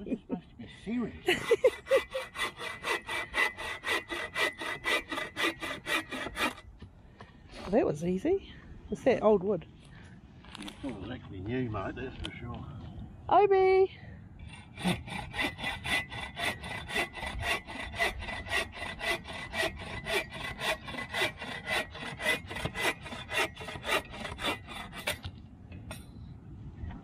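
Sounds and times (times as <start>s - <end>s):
hand saw cutting a log: 1.3s - 6.7s, 14.5s - 25.3s.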